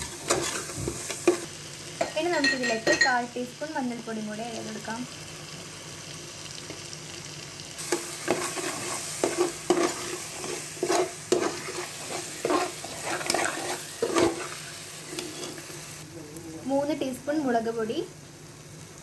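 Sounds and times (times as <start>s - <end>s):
spoon scraping a pot: 0.0s - 1.4s, 7.9s - 15.6s
frying sizzle: 0.0s - 19.0s.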